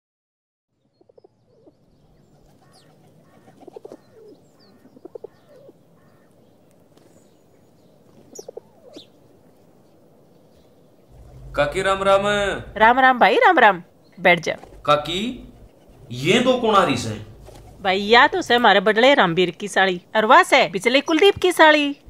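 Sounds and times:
small birds chirping: 0:00.7 - 0:22.0
pigeons cooing: 0:01.2 - 0:06.4, 0:08.1 - 0:09.1, 0:11.1 - 0:12.0, 0:14.4 - 0:18.6.

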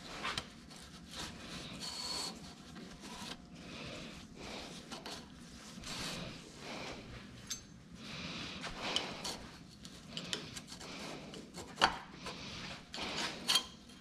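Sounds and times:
rubbing and scraping handling: 0:00.0 - 0:07.6, 0:08.5 - 0:14.0.

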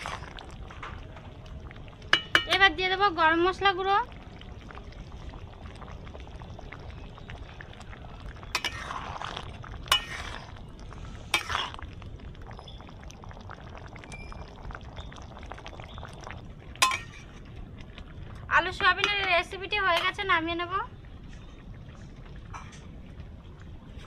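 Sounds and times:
curry bubbling: 0:00.0 - 0:24.0
metal ladle clinking on pan: 0:02.2 - 0:02.6, 0:16.8 - 0:17.3.

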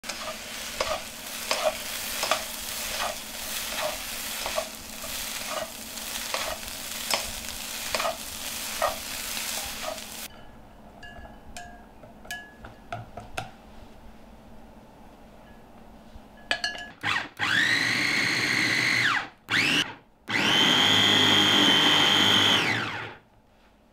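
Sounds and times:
food sizzling in a pan: 0:00.0 - 0:10.3
spatula strokes in a pan: 0:00.0 - 0:10.3
spoon clinking on glass bowl: 0:10.3 - 0:12.8, 0:16.4 - 0:17.0.

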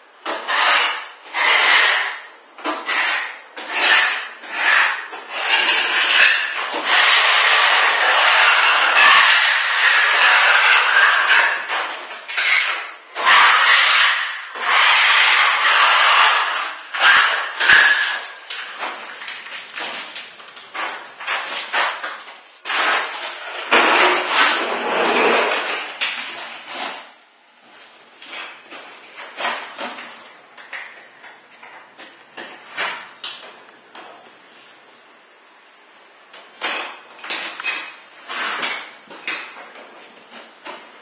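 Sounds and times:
trowel scraping adhesive on concrete: 0:00.3 - 0:20.0, 0:22.7 - 0:27.0.

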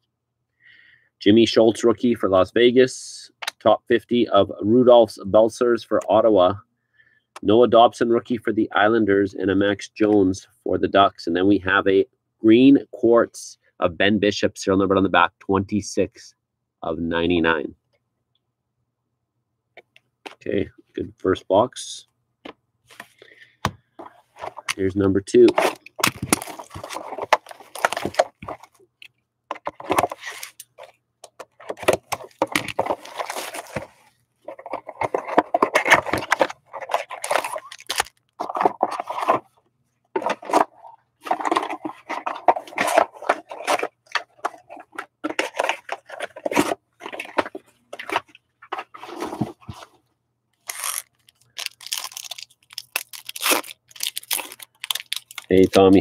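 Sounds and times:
foil packs crinkling and tearing: 0:25.6 - 0:28.5, 0:35.8 - 0:39.2, 0:50.6 - 0:56.0.

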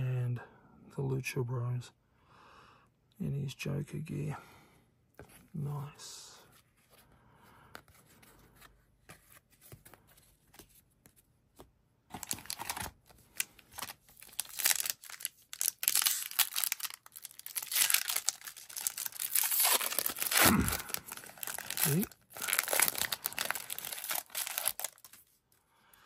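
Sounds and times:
wrapper crinkling and tearing: 0:12.1 - 0:25.4.

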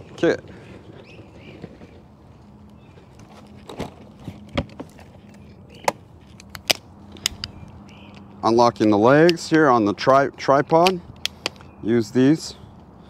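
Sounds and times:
equipment case clicks and knocks: 0:03.2 - 0:08.2
tripod being handled: 0:03.2 - 0:08.3.

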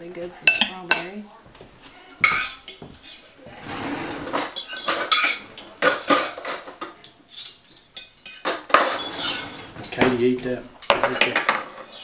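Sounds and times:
cutlery clinking on plates: 0:00.4 - 0:01.2, 0:03.8 - 0:12.0.

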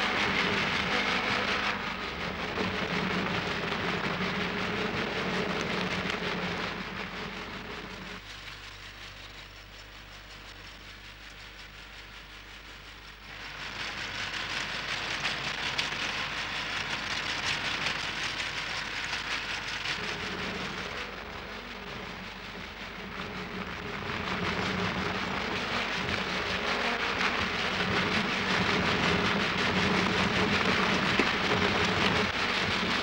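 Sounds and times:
low engine drone: 0:00.0 - 0:33.0.

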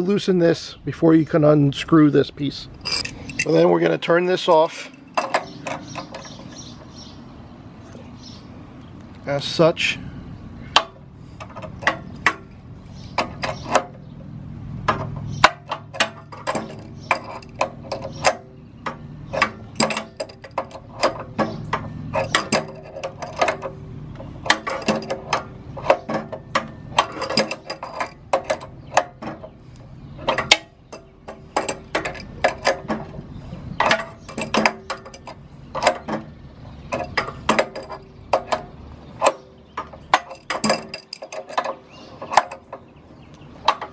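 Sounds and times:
wrench clicking on metal: 0:02.8 - 0:03.6.

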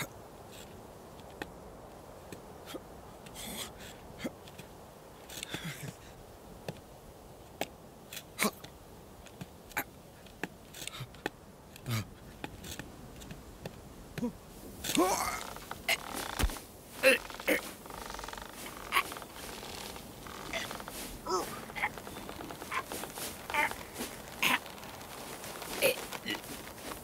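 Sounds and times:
outdoor air hiss: 0:00.0 - 0:27.0
hooves clicking on rock: 0:06.6 - 0:27.0.

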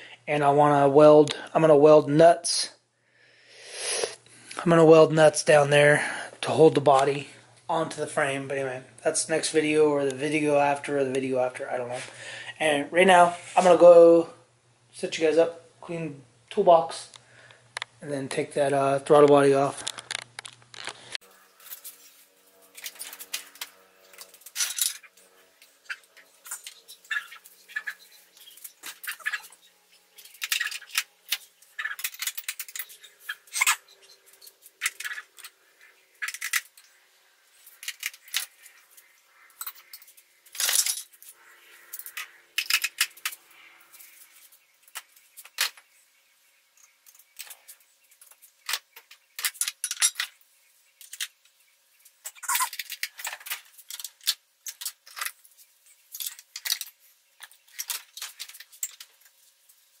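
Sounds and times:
metal tools clinking on steel: 0:21.6 - 0:35.5, 0:39.6 - 0:41.3, 0:49.4 - 0:50.4.

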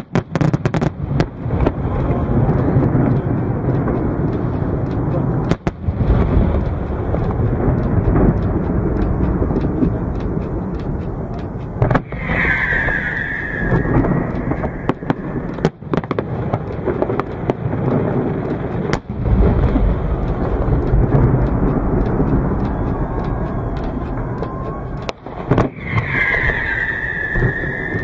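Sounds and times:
fireworks bangs and crackles: 0:00.0 - 0:28.0
low rumble: 0:00.8 - 0:28.0
high whistle: 0:12.0 - 0:15.5, 0:22.7 - 0:28.0.

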